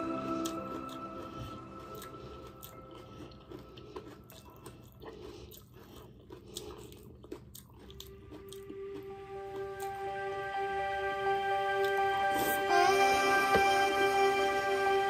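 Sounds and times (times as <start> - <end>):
person chewing crunchy cereal: 0.0 - 10.1.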